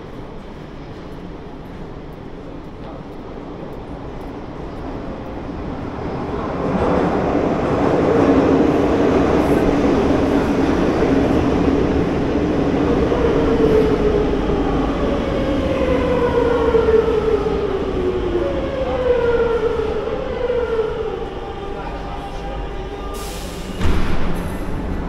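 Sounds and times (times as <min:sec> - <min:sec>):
train braking: 0:18.4 - 0:25.0.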